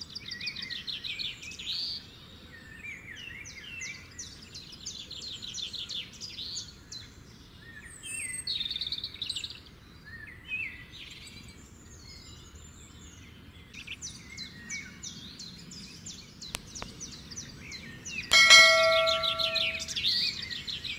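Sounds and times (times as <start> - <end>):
birds chirping: 16.5 - 20.1
notification bell chime: 18.3 - 19.9.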